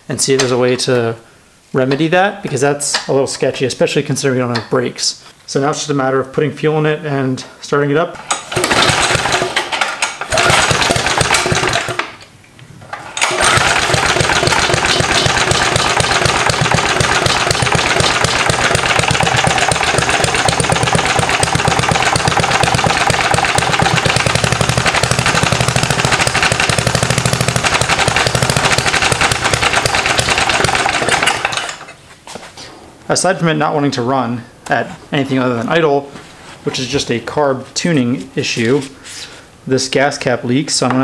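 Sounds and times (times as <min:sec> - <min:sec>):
small engine starting and idling: 0:08.3 - 0:12.1, 0:12.9 - 0:31.9.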